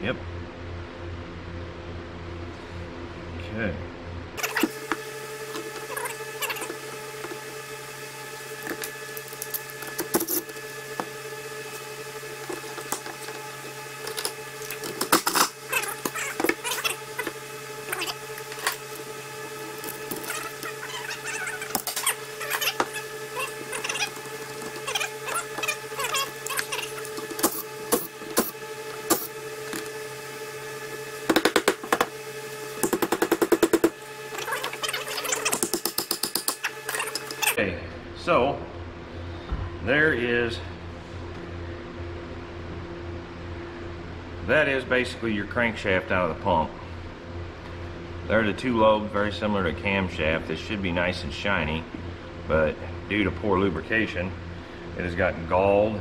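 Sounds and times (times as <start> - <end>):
steady hum: 0.0 - 56.0.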